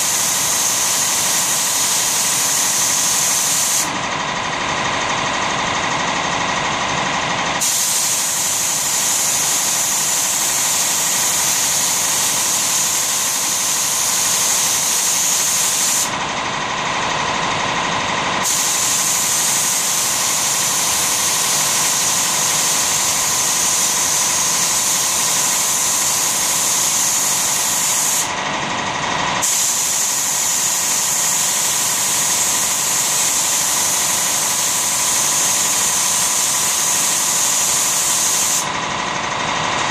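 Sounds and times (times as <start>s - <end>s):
spray gun hissing: 0.0s - 4.0s, 7.6s - 16.2s, 18.4s - 28.4s, 29.4s - 38.7s
motor running: 0.0s - 39.9s.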